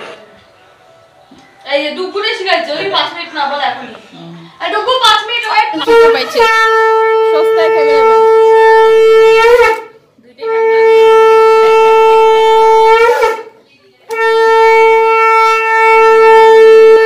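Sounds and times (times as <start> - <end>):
conch shell blasts: 5.8 - 17.0.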